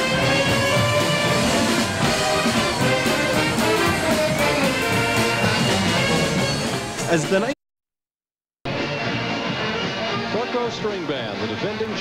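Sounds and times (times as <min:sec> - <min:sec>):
accordions: 0:00.0 - 0:07.0
saxophones playing melody: 0:00.0 - 0:07.0
string band playing: 0:00.0 - 0:07.5.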